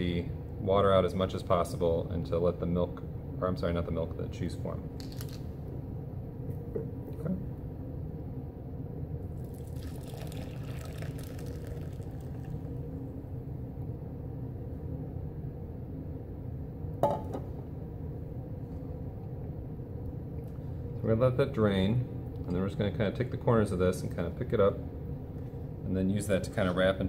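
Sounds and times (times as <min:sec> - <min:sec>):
low background hum: 0:00.0 - 0:27.0
liquid splashing into strainer: 0:09.4 - 0:12.7.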